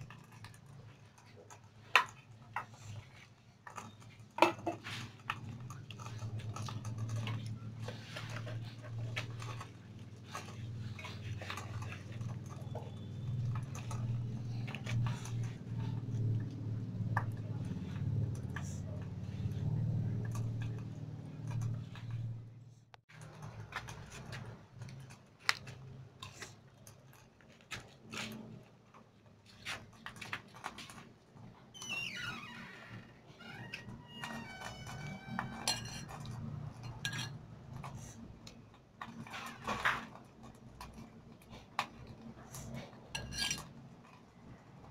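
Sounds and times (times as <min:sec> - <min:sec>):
metal spoon scraping glass bowl: 0:34.8 - 0:38.0, 0:43.1 - 0:43.7.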